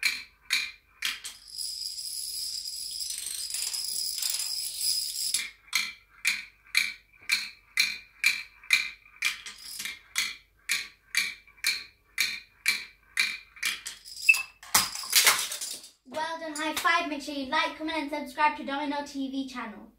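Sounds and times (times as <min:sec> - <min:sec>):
plastic dominoes clattering: 0:01.0 - 0:05.9, 0:09.3 - 0:10.3, 0:13.6 - 0:16.0.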